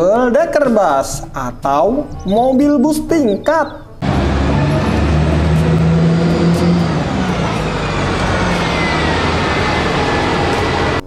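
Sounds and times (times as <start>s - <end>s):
street traffic noise: 3.9s - 11.0s
bus engine droning: 4.0s - 11.0s.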